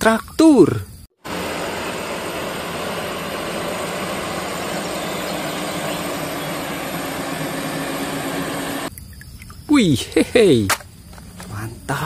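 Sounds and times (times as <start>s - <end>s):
tractor diesel engine under load: 1.2s - 8.9s.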